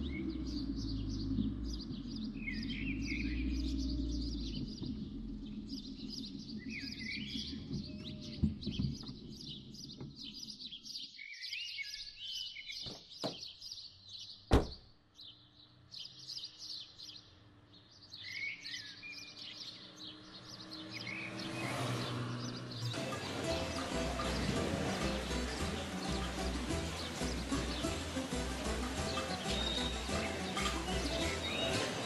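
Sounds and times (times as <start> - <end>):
whistled bird calls: 0.0 - 9.7, 29.0 - 32.0
low rumble: 0.0 - 9.8
car approaching: 0.0 - 10.4, 15.8 - 32.0
birds chirping: 0.0 - 32.0
sharp knocks: 12.8 - 13.5.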